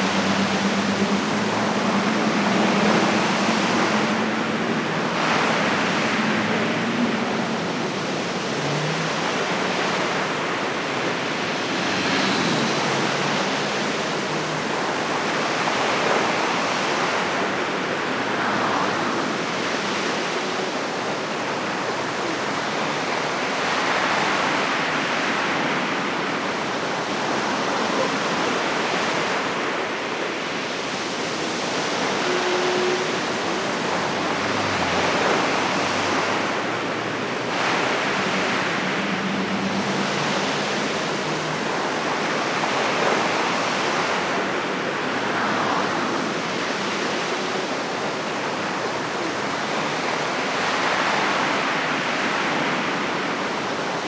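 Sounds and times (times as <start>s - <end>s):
steady rushing noise: 0.0s - 54.0s.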